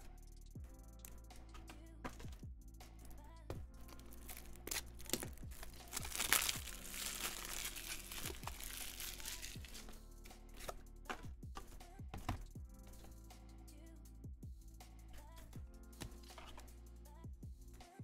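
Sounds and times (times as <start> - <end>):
plastic wrapper crinkling: 4.0 - 9.9
wrapper tearing: 4.0 - 9.9.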